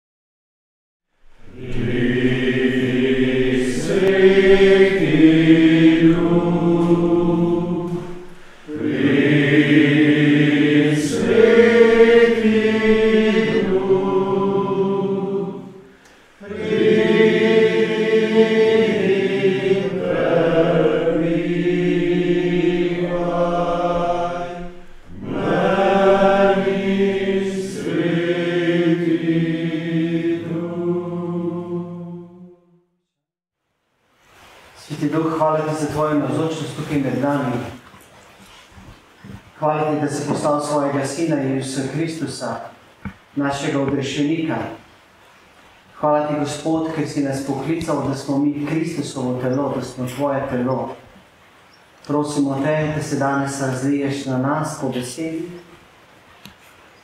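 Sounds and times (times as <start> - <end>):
voices singing a slow chant: 1.2 - 32.8, 39.3 - 44.8.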